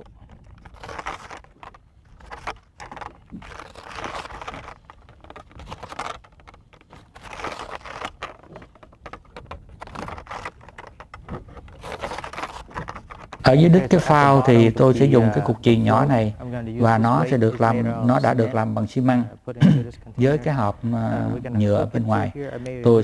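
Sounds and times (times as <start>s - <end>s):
rustling of fishing line: 0.0s - 18.9s.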